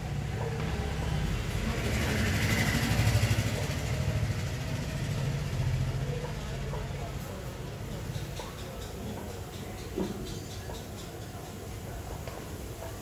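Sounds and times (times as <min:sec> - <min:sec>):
vehicle engine passing by: 0:00.0 - 0:07.8.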